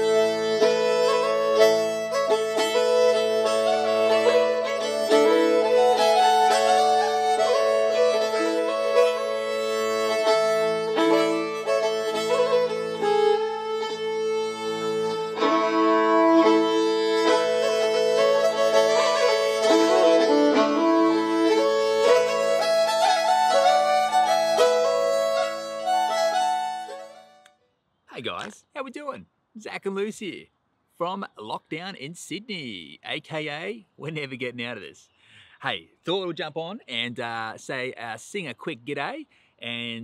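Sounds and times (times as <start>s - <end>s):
fiddle-like melody: 0.0s - 27.6s.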